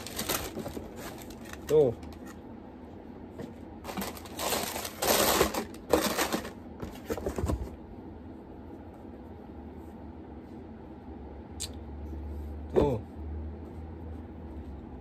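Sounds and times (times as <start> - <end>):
tissue paper rustling: 0.0 - 1.8, 3.8 - 6.6.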